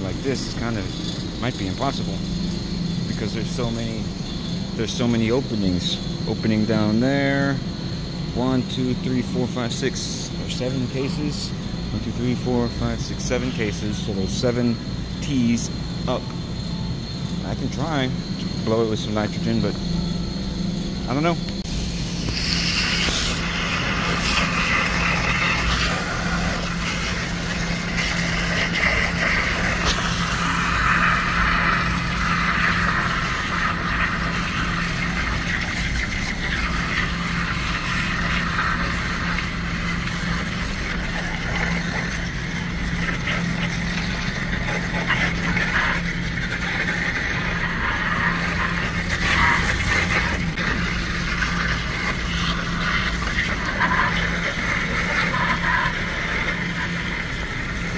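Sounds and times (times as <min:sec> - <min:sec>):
steady low hum: 0:00.0 - 0:57.9
water jet hissing and splashing: 0:21.2 - 0:57.9.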